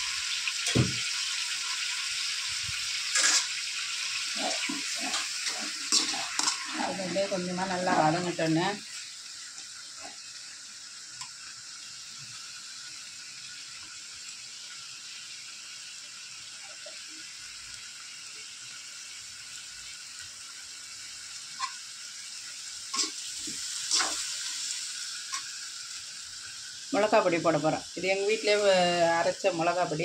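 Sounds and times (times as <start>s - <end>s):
chicken sizzling in hot oil: 0.0s - 30.0s
metal ladle scraping pan: 3.1s - 3.6s, 4.3s - 7.2s, 22.9s - 24.3s.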